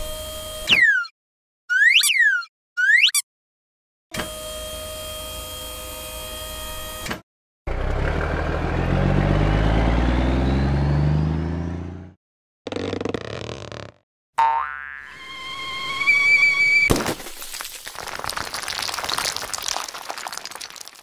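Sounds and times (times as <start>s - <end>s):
mechanical hum with held tones: 0.0s - 0.7s
truck engine revving: 7.7s - 12.2s.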